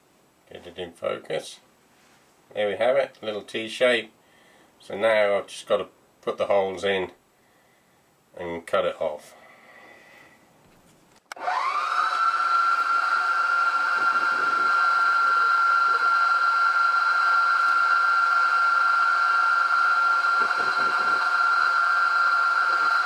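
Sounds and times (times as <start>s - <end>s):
milling machine spindle whining: 11.3s - 23.0s.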